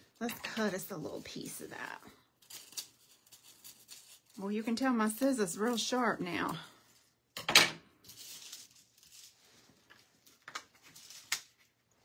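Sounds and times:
foil crinkling and rustling: 0.5 - 4.6, 8.0 - 11.8.

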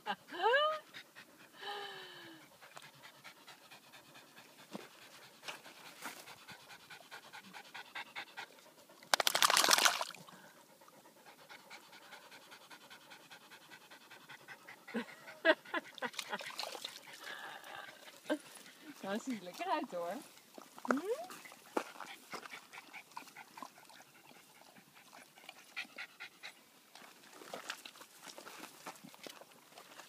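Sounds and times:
dog panting: 0.0 - 9.1, 10.4 - 16.1, 17.0 - 20.2, 21.3 - 26.7.

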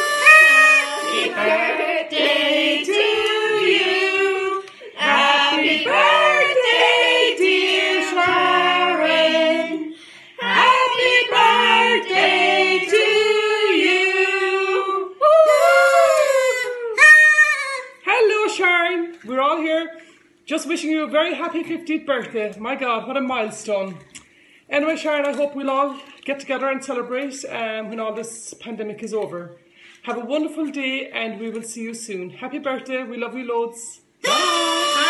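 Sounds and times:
group singing unaccompanied: 0.0 - 15.1.

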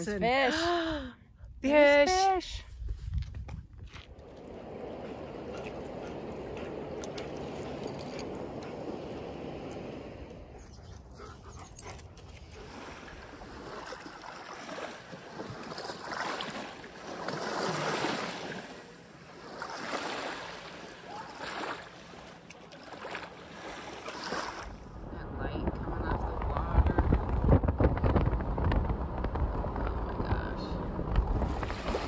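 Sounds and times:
small waves lapping on pebbles: 3.9 - 10.3, 12.4 - 24.8, 31.3 - 32.0.

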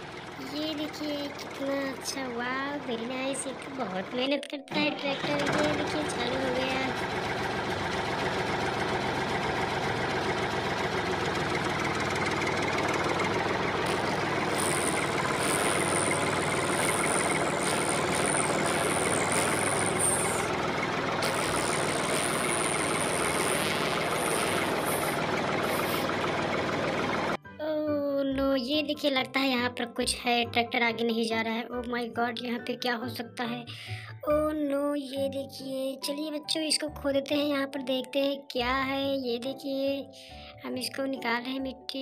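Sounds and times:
tractor engine running: 0.0 - 27.4.

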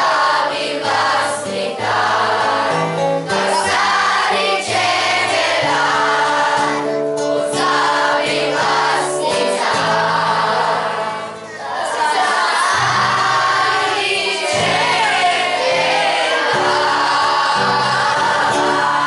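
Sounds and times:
children's choir singing: 0.0 - 19.0
instrumental accompaniment: 0.0 - 19.0.

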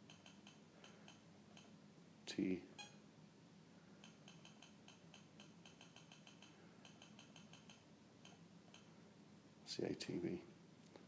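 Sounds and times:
faint keypad ticking: 0.0 - 1.7, 4.0 - 8.9.

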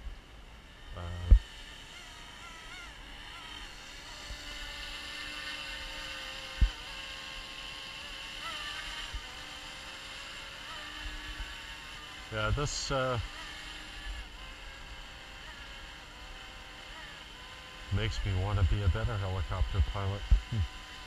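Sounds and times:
rc helicopter motor whine: 0.0 - 21.0
short low thumps: 1.1 - 1.4, 18.4 - 20.7.

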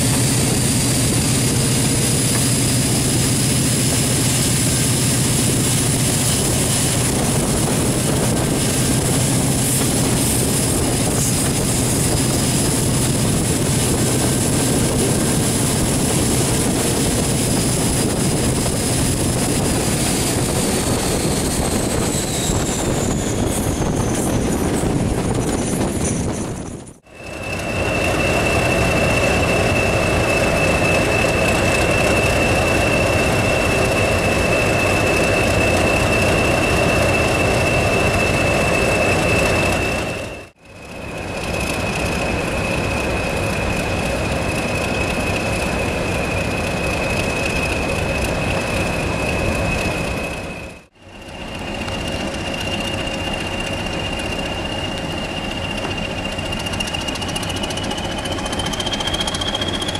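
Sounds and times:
diesel locomotive engine running: 0.0 - 59.9
moving train running noise: 0.0 - 59.9
high turbo whistle: 27.0 - 59.9.

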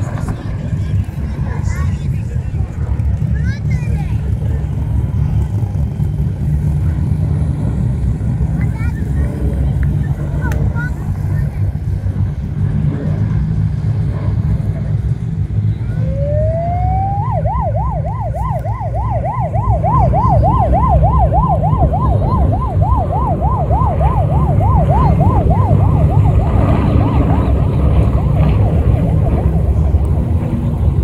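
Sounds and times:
loud low rumble: 0.0 - 31.0
siren wailing and yelping: 15.7 - 30.4.

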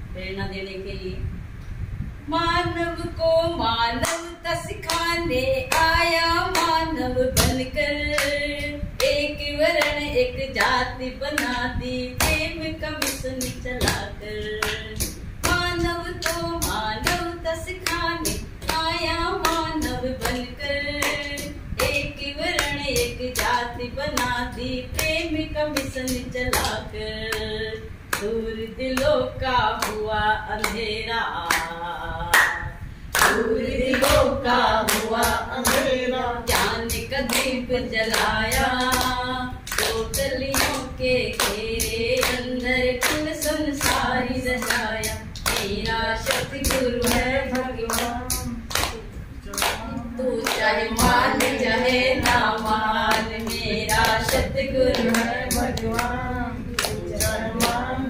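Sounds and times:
woman singing devotional song: 2.0 - 58.0
hands clapping to a beat: 7.4 - 8.4, 13.0 - 17.2, 19.4 - 22.0, 25.8 - 27.4, 32.3 - 35.9, 36.5 - 56.2, 56.8 - 57.8.

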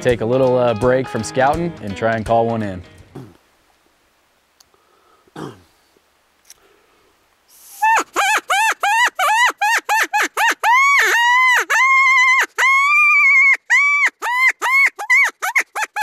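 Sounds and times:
high squealing wails: 7.8 - 16.0.

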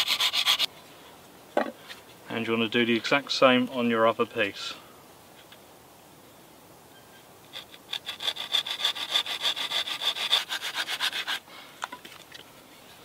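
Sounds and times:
folding saw cutting wood: 0.0 - 0.7, 7.5 - 11.4.

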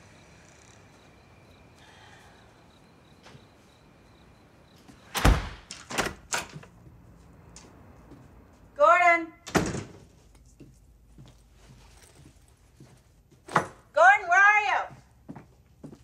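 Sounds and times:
heavy door shutting with thud: 5.0 - 6.6, 9.5 - 10.0.

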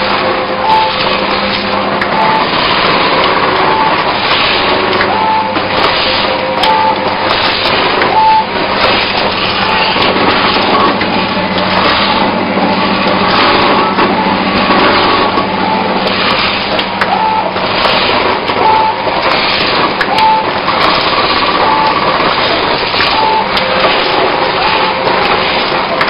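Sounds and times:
packaging machine running: 0.0 - 26.0
brief high beeps: 0.6 - 1.1, 5.1 - 5.6, 6.5 - 7.0, 8.1 - 8.5, 17.1 - 17.6, 18.6 - 19.0.

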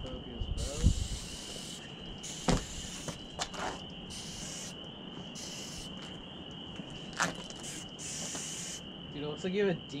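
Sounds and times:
faint hiss: 0.5 - 6.1, 7.2 - 9.6.

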